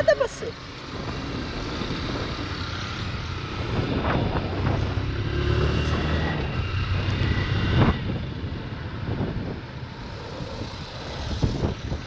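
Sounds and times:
motorcycle engine accelerating: 0.9s - 12.0s.

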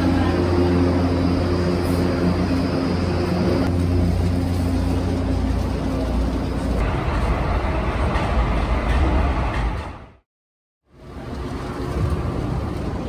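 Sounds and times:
low motor hum: 0.0s - 9.2s
train rumble: 0.0s - 10.2s.

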